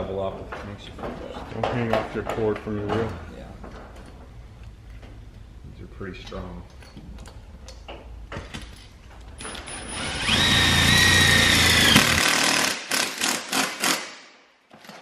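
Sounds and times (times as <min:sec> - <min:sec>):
cordless drill whining: 0:09.4 - 0:12.6.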